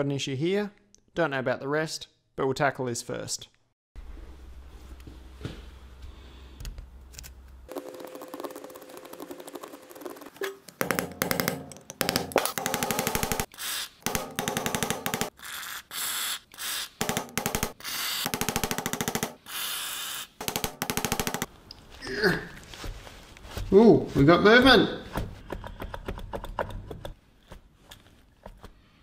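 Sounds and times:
power impact tool hammering: 10.7 - 15.4, 17.0 - 19.4, 20.4 - 21.5.

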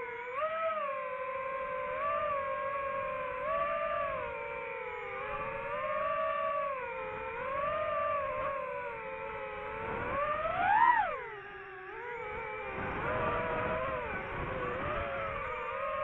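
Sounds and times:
drone propellers whining: 0.0 - 16.0.

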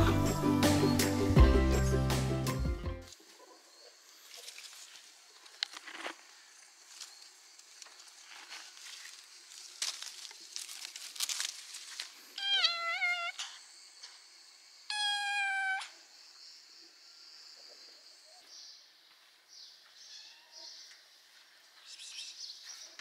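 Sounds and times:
leaves and branches rustling: 3.1 - 13.7
kitten meowing: 12.4 - 13.4, 14.9 - 15.9, 20.2 - 20.6.

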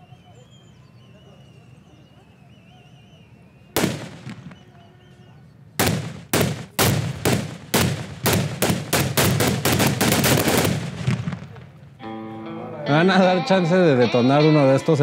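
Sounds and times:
explosive blasts: 3.8 - 4.7, 5.8 - 11.8.

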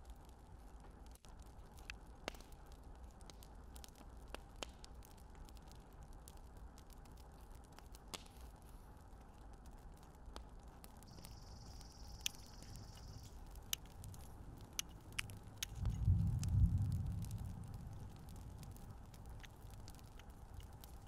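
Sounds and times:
low rumble: 12.6 - 21.0.

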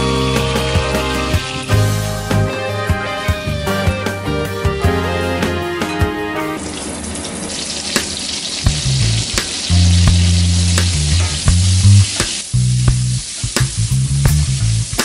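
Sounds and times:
onions sizzling in a frying pan: 0.0 - 1.9, 6.6 - 15.0
background music: 0.0 - 6.8.

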